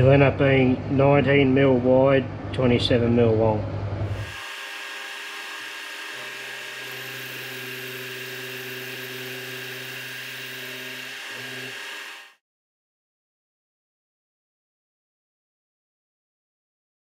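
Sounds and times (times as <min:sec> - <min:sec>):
milling machine whine: 0:04.0 - 0:12.4.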